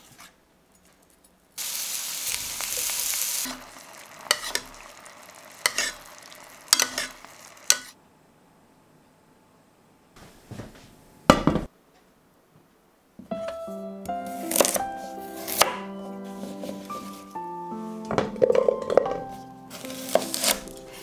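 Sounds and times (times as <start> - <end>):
sauce bubbling: 1.6 - 7.9
food sizzling in a frying pan: 1.6 - 8.0.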